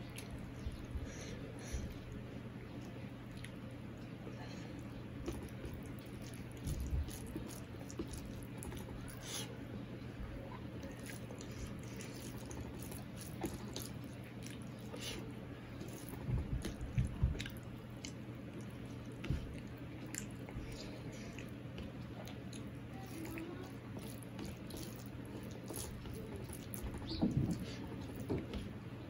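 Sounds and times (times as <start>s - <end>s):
chewing with wet mouth clicks: 0.0s - 0.8s, 2.6s - 9.5s, 10.8s - 28.6s
fingers squishing wet rice: 4.9s - 9.6s, 10.6s - 28.7s.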